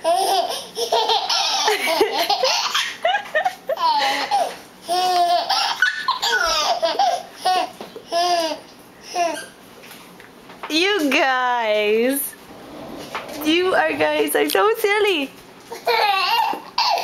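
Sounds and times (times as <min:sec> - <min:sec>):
toddler laughing: 0:00.0 - 0:09.6, 0:15.7 - 0:17.0.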